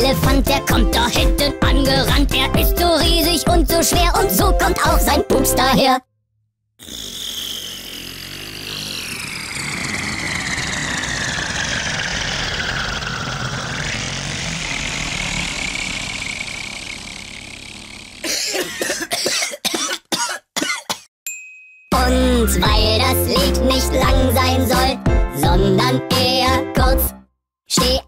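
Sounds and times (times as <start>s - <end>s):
cartoon fart sound effect: 6.8s - 18.6s.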